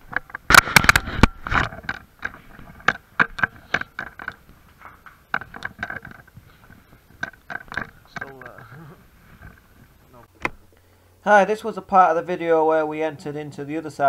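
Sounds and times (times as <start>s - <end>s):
clatter of sharp knocks: 0.0s - 8.7s.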